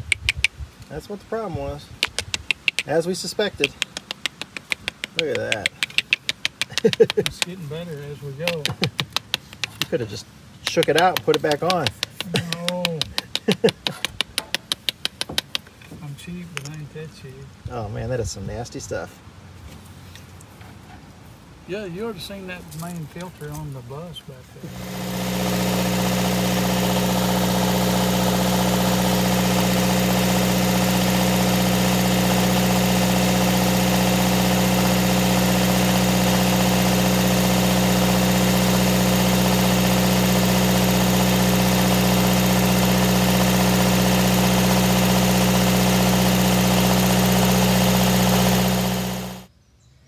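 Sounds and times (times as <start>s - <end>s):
generator running: 24.6s - 49.5s.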